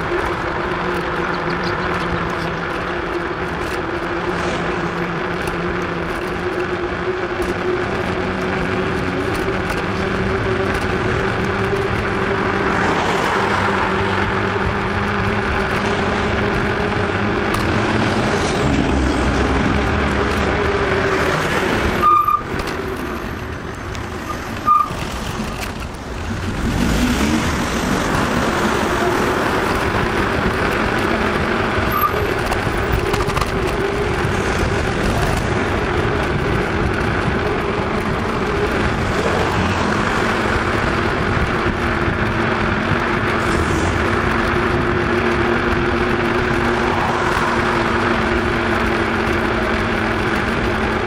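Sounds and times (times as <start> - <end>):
bicycle tyres humming on asphalt: 0.0 - 51.0
road and traffic noise: 0.0 - 51.0.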